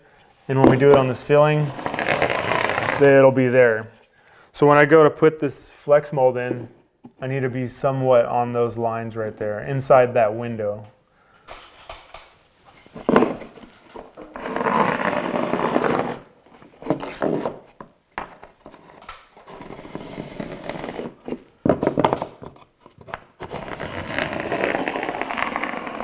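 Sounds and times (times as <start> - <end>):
pencil scratching on drywall: 1.6 - 3.1, 19.4 - 21.4, 23.4 - 26.0.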